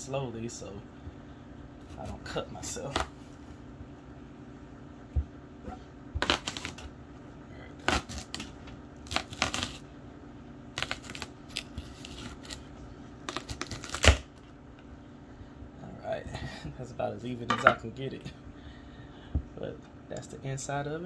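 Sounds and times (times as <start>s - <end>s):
knife crunching through squash: 6.2s - 6.9s, 7.8s - 9.8s, 10.8s - 14.4s.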